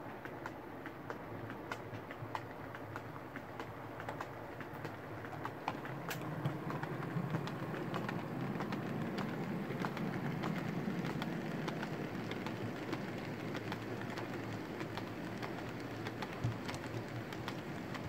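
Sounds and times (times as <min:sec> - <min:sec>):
model train rumbling: 0:00.0 - 0:18.0
wheel clicks on track: 0:00.1 - 0:18.0.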